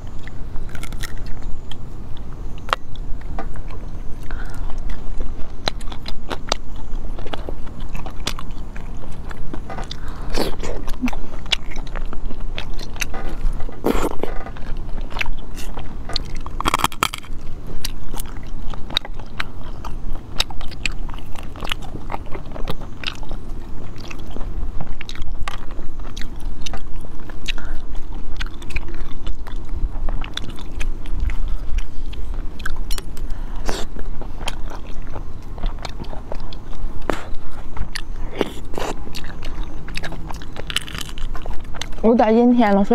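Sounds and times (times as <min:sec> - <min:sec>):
wet chewing: 0:00.0 - 0:42.9.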